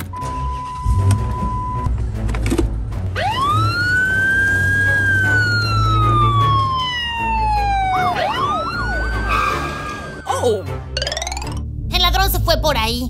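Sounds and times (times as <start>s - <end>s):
police siren wailing and yelping: 3.2s - 10.3s.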